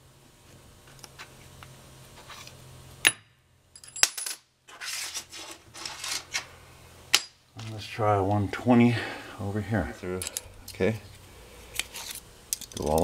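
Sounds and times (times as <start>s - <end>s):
steel parts clinking: 3.7s - 6.5s, 10.2s - 10.8s, 11.7s - 13.0s
metal sliding and rattling: 4.7s - 6.5s.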